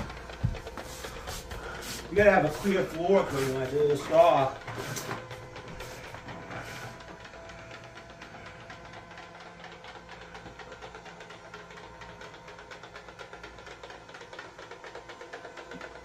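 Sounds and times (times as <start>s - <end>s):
robot sweeper whirring: 0.0s - 7.8s.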